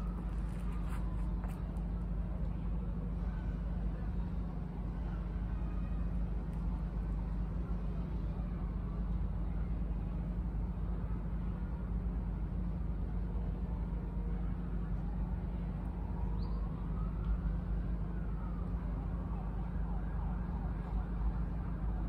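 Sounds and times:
distant emergency siren: 0.0s - 2.3s, 13.6s - 22.0s
city traffic rumble: 0.0s - 22.0s.

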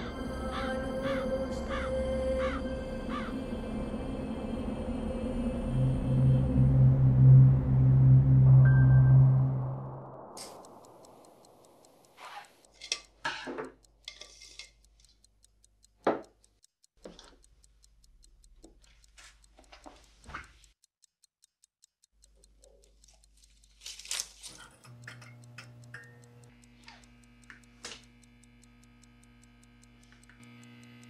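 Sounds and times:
faint clock ticking: 0.0s - 3.3s, 10.1s - 31.0s.

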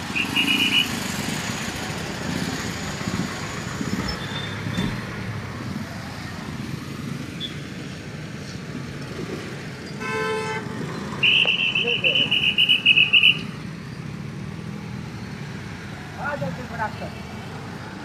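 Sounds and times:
vehicle engines running: 0.0s - 18.0s
horn beep: 0.1s - 1.0s, 10.0s - 13.5s.

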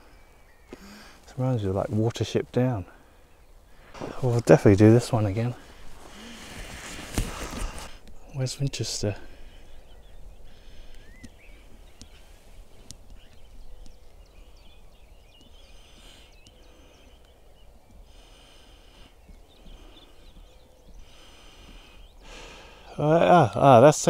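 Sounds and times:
bird chirps and trills: 0.0s - 2.4s, 8.0s - 22.9s.

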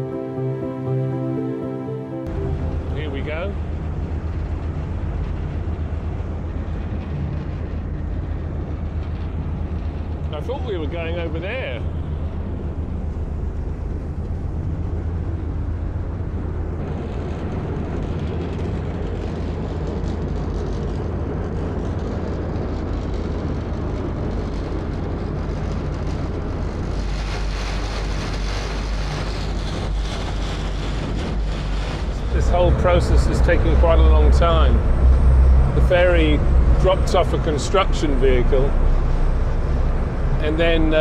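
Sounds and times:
ferry engines droning: 0.0s - 41.0s
hiss: 26.9s - 32.2s.

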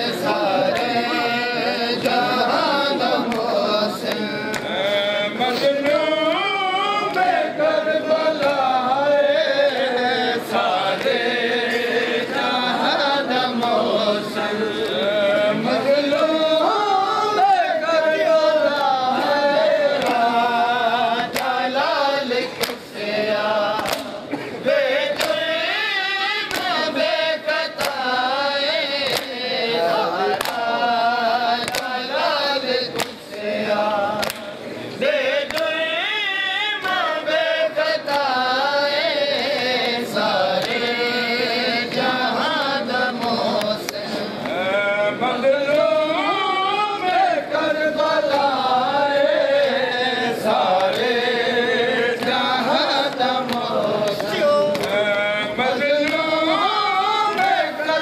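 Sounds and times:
men chanting through microphone: 0.0s - 58.0s
hands slapping chests: 21.3s - 21.6s, 22.6s - 22.8s, 23.7s - 24.2s, 25.1s - 25.5s, 26.5s - 26.8s, 27.8s - 28.2s, 29.0s - 29.4s, 30.3s - 30.7s, 34.2s - 34.5s.

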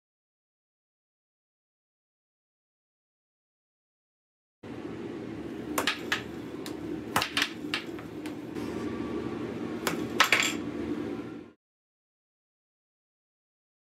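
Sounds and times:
blower fan humming: 4.6s - 11.6s.

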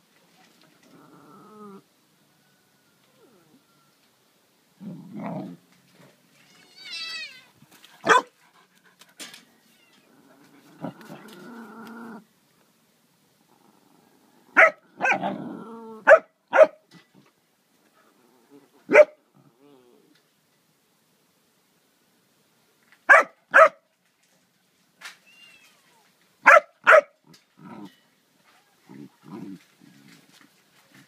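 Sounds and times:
low growling: 0.8s - 1.9s, 10.1s - 12.3s, 13.4s - 16.0s, 17.9s - 20.2s, 27.3s - 28.0s
dog barking: 8.0s - 8.3s, 14.6s - 15.3s, 16.0s - 16.8s, 18.9s - 19.2s, 23.1s - 23.8s, 26.4s - 27.2s.

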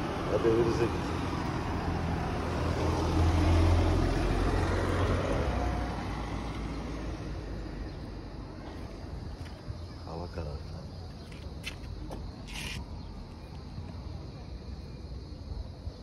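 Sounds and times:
vehicle passing on road: 0.0s - 14.3s.

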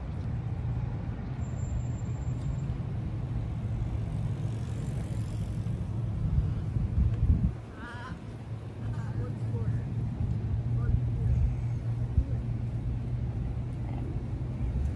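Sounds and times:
wind buffeting the microphone: 6.0s - 7.8s.

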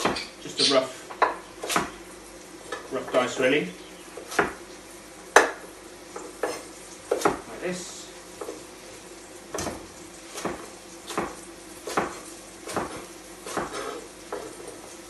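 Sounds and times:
knife chopping on wooden board: 0.0s - 0.3s, 1.1s - 1.9s, 4.2s - 4.6s, 5.3s - 7.5s, 9.5s - 14.6s
vegetables sizzling in pot: 0.0s - 15.0s.

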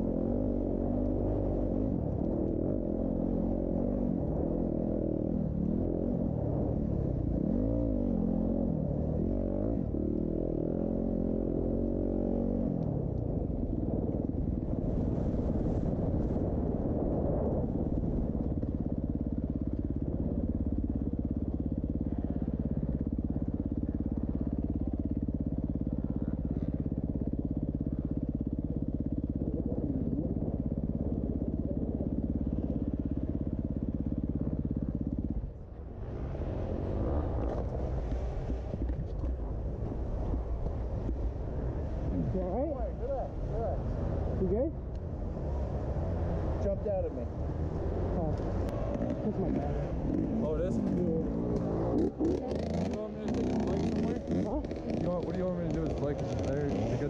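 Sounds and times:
motorcycle engines revving: 0.0s - 57.0s.

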